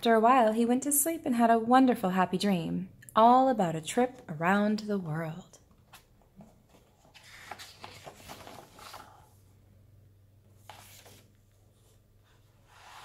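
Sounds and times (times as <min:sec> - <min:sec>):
book pages turning: 0:05.8 - 0:09.5, 0:10.5 - 0:13.0
paper rustling with small clicks: 0:05.9 - 0:09.3.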